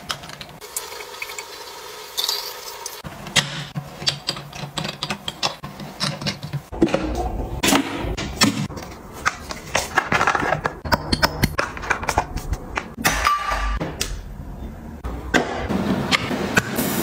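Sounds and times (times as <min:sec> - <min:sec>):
bottles clicking and knocking: 0:09.3 - 0:13.0.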